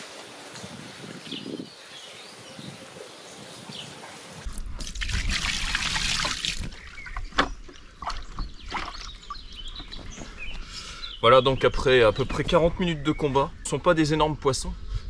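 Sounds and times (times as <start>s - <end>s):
water splashing from bucket: 4.5s - 9.4s.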